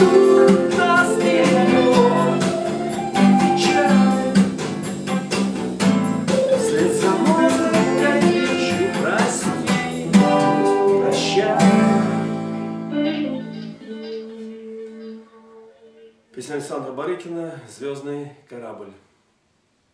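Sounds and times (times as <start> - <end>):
acoustic guitar strumming: 0.0 - 15.9
backing track through speaker: 0.0 - 16.1.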